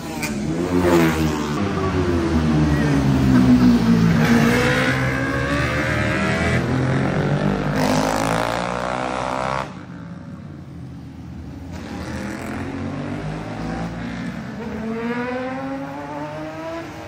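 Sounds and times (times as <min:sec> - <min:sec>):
racing motorcycles passing at high revs: 0:00.0 - 0:10.7, 0:11.7 - 0:17.0.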